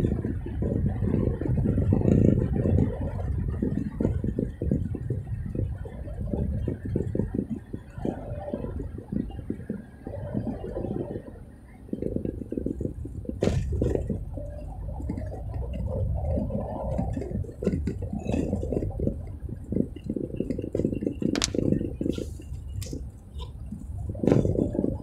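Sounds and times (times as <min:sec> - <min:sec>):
car cabin rumble: 0:00.0 - 0:25.0
irregular clicks and knocks: 0:20.7 - 0:21.8.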